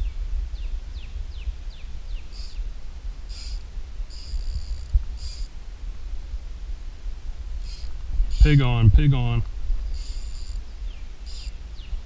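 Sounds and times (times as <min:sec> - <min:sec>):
bird chirping: 0:00.0 - 0:02.7, 0:07.6 - 0:12.0
low rumble on microphone: 0:00.0 - 0:10.0.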